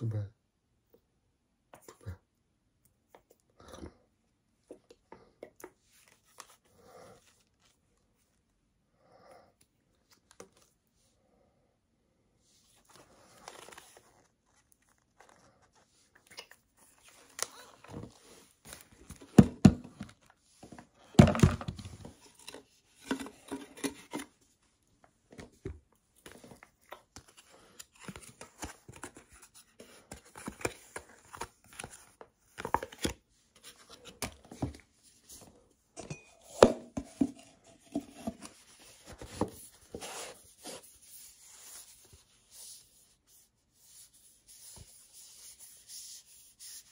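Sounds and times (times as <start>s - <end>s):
paper rustling and crinkling: 12.7s - 24.3s.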